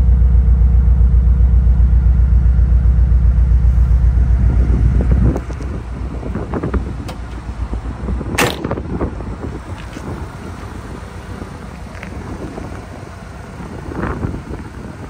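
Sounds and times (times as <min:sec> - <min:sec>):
wind buffeting microphone: 0:03.6 - 0:15.0.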